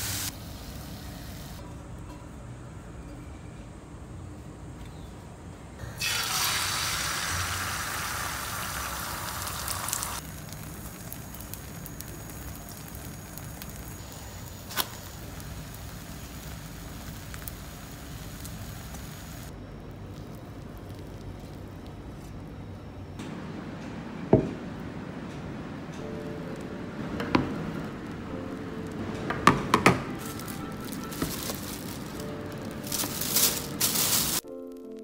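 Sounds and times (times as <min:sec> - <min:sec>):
food sizzling in frying pan: 0:00.0 - 0:01.6, 0:06.0 - 0:19.5.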